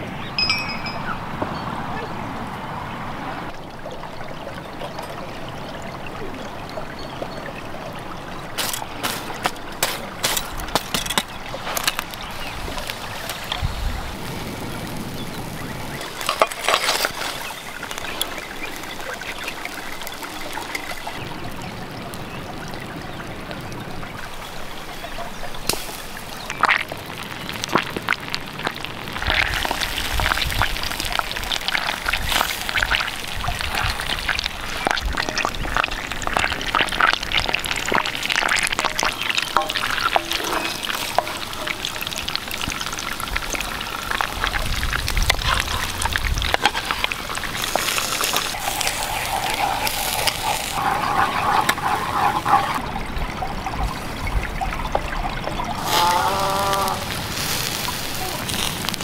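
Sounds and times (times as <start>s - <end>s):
butter sizzling in frying pan: 8.5s - 21.2s, 24.2s - 52.8s, 55.7s - 59.0s
crackles and pops: 8.5s - 52.8s, 54.7s - 59.0s.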